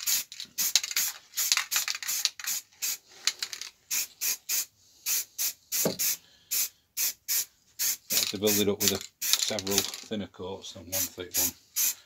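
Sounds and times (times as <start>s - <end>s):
aerosol spray can hissing: 0.0s - 3.0s, 3.9s - 9.4s, 11.0s - 12.0s.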